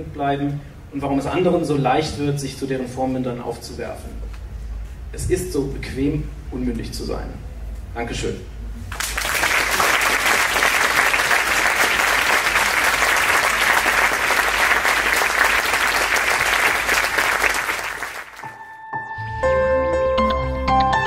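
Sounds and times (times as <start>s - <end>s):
audience applauding: 8.9s - 18.6s.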